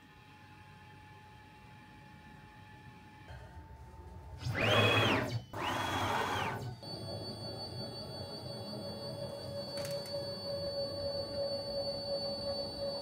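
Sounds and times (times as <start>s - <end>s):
stepper motors whining: 4.4s - 13.0s.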